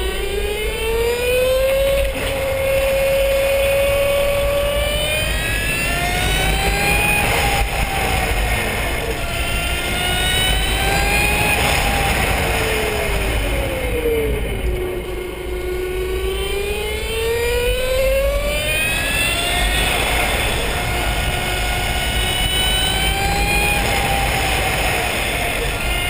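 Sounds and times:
electric motor whining: 0.0s - 26.0s.

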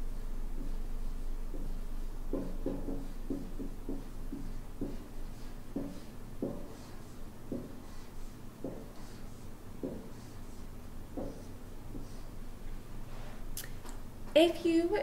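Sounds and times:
marker writing on paper: 0.6s - 12.4s.

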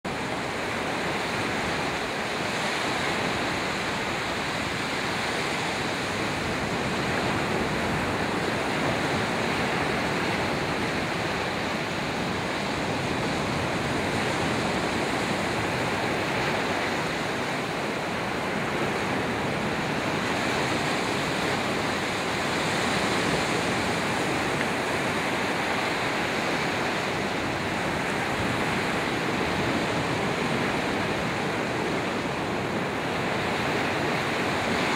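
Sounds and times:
small waves breaking: 0.1s - 34.9s.

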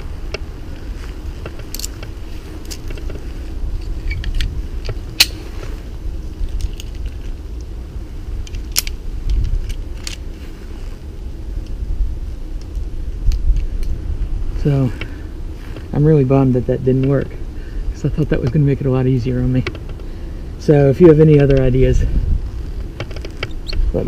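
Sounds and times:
steady low rumble: 0.0s - 24.0s
metal climbing hardware clinking: 1.4s - 3.2s.

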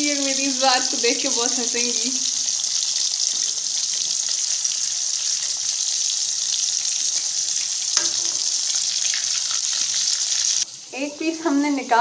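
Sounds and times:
fish deep-frying in oil: 0.0s - 12.0s.

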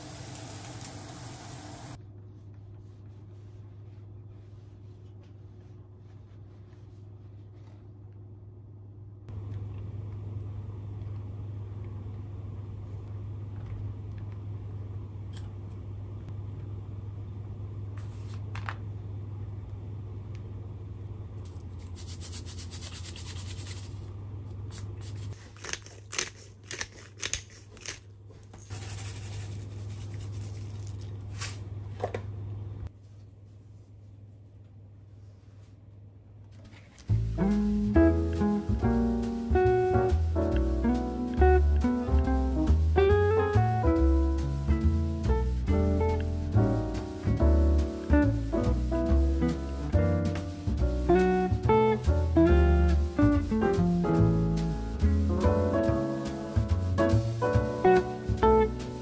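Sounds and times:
low mechanical hum: 0.0s - 59.0s.

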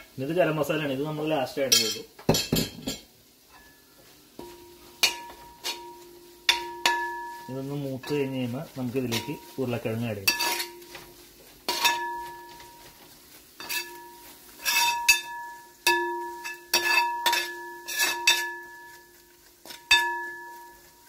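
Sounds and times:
metal ladle clanking on pot: 4.4s - 7.4s, 10.3s - 10.9s, 11.7s - 12.3s, 14.6s - 18.9s, 19.6s - 20.8s
pot ringing: 4.4s - 8.4s, 11.7s - 12.8s, 13.6s - 21.0s.

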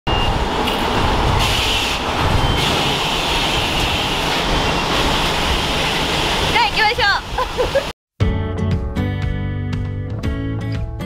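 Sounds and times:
high-pressure water spray hissing: 1.4s - 7.9s.

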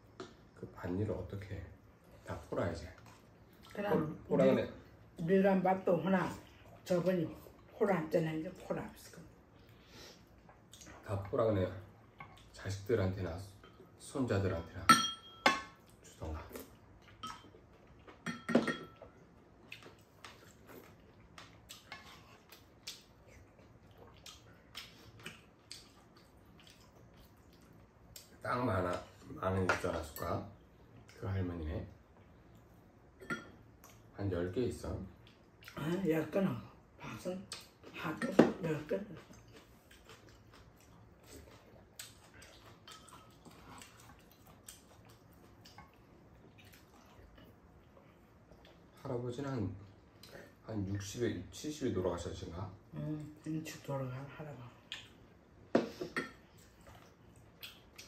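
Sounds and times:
utensils clinking on ceramic bowls: 14.9s - 15.8s, 18.2s - 19.0s
faint chewing: 18.9s - 29.3s, 39.0s - 49.1s, 54.8s - 58.0s.

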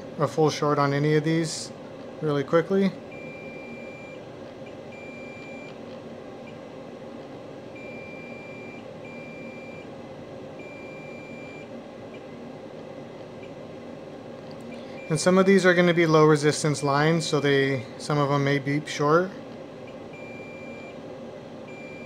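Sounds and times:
multimeter continuity beeps: 3.1s - 6.6s, 7.7s - 9.9s, 10.6s - 12.3s, 14.7s - 15.3s, 19.8s - 21.0s, 21.6s - 22.0s.

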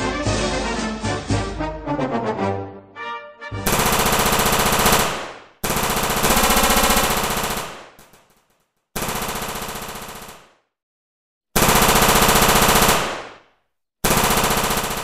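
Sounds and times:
brass music: 0.0s - 3.8s
machine-gun bursts: 3.7s - 10.6s, 11.6s - 13.4s, 14.0s - 15.0s.

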